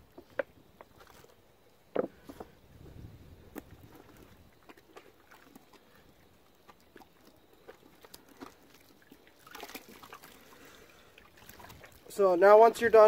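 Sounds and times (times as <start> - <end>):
wet squelching: 3.5 - 12.1
splashing in soapy water: 3.6 - 12.2.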